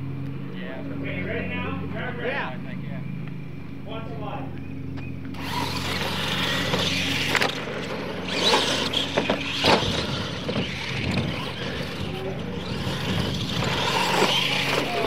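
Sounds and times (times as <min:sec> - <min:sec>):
toy truck motors running: 0:05.3 - 0:15.0
tyres scrabbling over dirt: 0:05.4 - 0:15.0.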